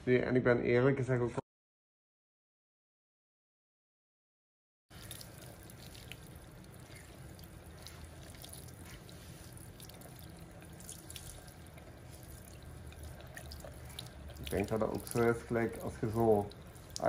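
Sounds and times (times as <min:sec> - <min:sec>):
sink sprayer water splashing: 0:04.9 - 0:17.0
water drips and spatters: 0:04.9 - 0:17.0.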